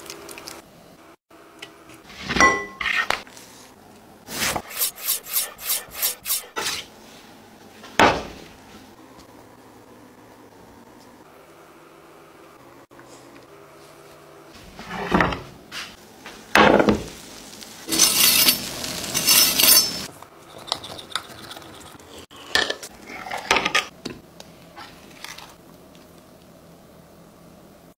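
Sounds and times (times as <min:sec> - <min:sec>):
knife scraping glass dish: 0:04.6 - 0:06.8, 0:17.9 - 0:20.1.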